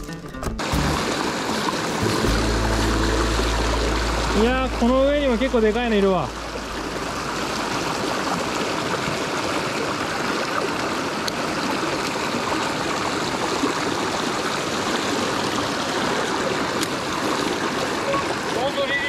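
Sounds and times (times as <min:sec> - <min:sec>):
stream rushing over rocks: 0:00.6 - 0:19.0.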